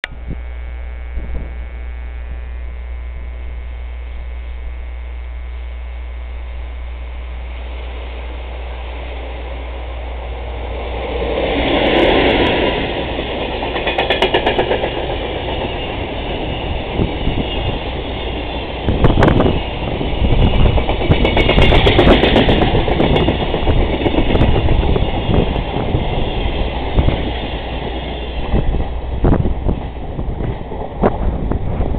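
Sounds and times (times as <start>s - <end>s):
freight train passing: 7.5s - 31.9s.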